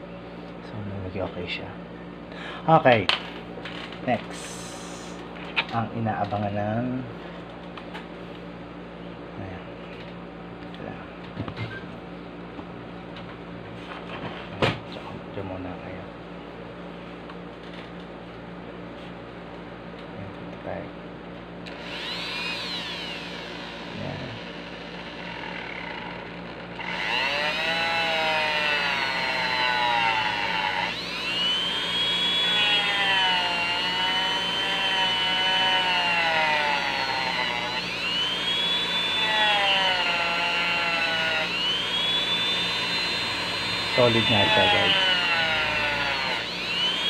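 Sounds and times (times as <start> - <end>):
rotary tool cutting plastic: 21.7 - 47.0.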